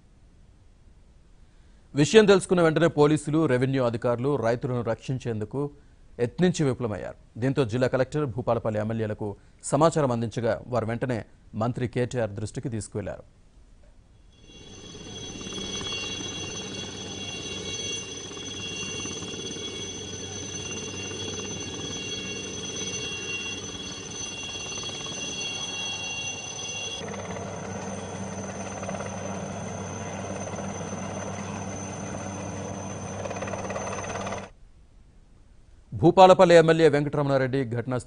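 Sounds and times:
high turbine whine: 14.3s - 34.5s
helicopter rotor thrum: 14.4s - 34.5s.

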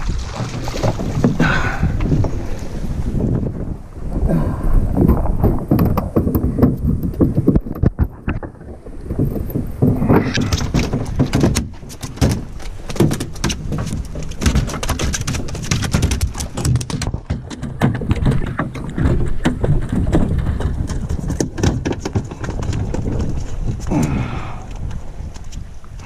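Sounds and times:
fish flopping on boat deck: 0.0s - 25.7s.

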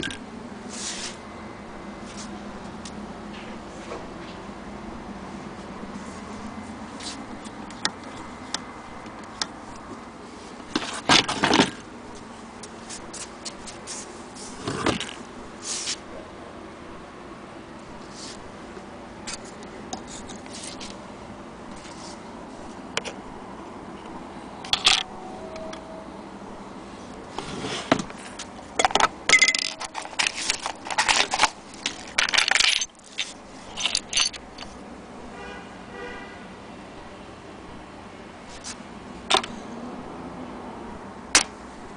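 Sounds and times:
small metal parts clinking in tray: 28.8s - 34.7s.

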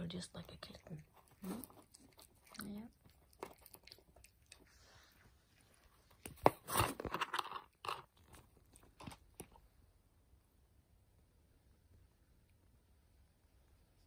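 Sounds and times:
puppy chewing and gnawing: 0.1s - 9.7s.

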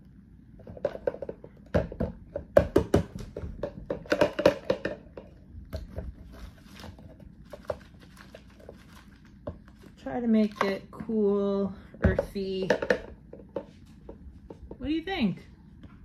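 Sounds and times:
plastic bag of dirt crinkling: 6.3s - 10.5s.

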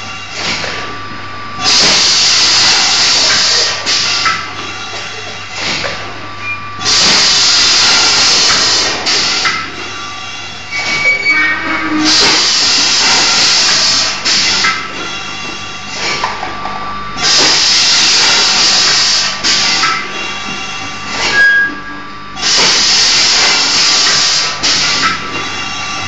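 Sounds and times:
machine hum: 0.0s - 24.1s
loud air hisses: 1.6s - 4.5s, 6.8s - 16.2s, 17.2s - 21.4s, 22.4s - 26.0s
machine clatter: 1.6s - 6.2s, 6.8s - 9.9s, 17.2s - 21.4s, 22.4s - 26.0s.

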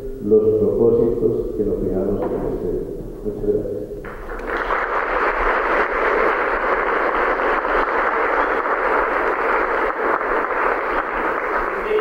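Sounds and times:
crowd applauding: 4.0s - 12.0s.

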